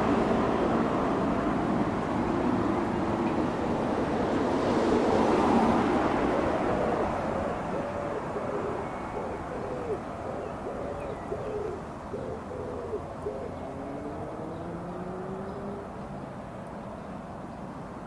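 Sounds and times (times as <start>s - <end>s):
outdoor background noise: 0.0s - 18.0s
pigeon cooing: 6.2s - 15.5s.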